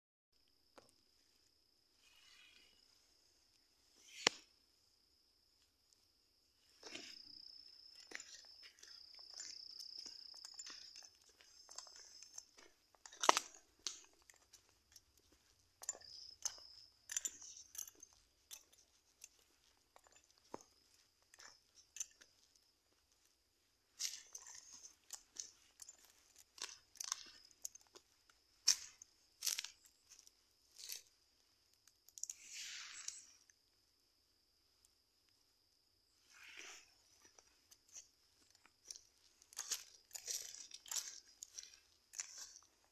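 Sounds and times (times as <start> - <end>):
footsteps crunching on leaves: 38.9 - 42.7.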